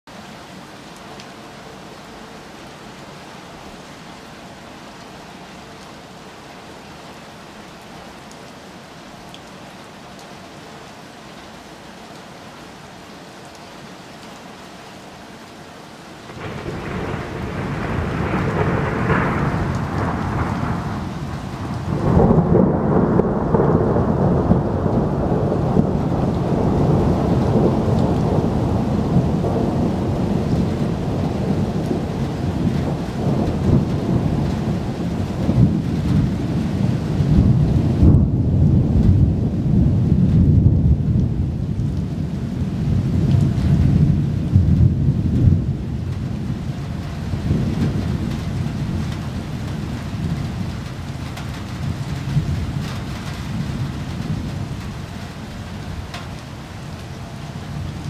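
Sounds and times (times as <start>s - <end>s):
rain falling: 0.1s - 58.0s
thunder rumbling: 16.3s - 56.4s.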